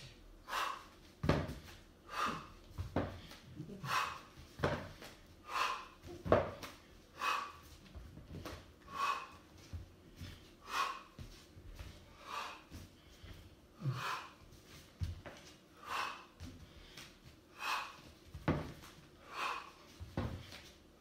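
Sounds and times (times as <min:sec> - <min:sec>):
thuds on wooden floor: 0:06.2 - 0:06.6.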